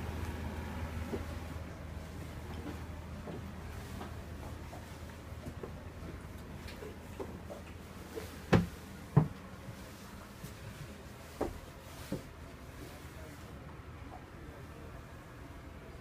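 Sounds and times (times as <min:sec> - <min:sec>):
knocks and bumps in a cabin: 0:08.1 - 0:09.8, 0:11.3 - 0:12.3.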